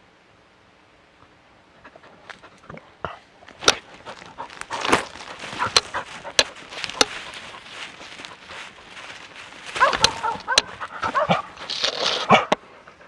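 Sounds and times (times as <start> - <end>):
rustling through brush: 3.3 - 13.0
dog panting: 3.8 - 13.0
sharp knocks or snaps: 4.8 - 7.3, 9.8 - 10.7.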